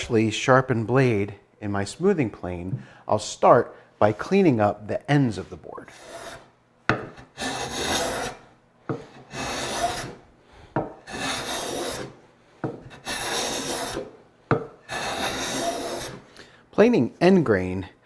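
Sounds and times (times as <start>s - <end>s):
hand plane cutting wood: 5.8s - 14.2s, 14.8s - 16.3s.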